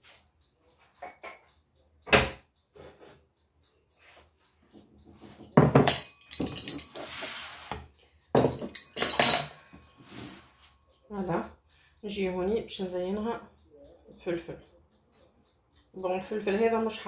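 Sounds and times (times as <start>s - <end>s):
tray scraping slide: 7.0s - 7.8s, 10.0s - 10.5s.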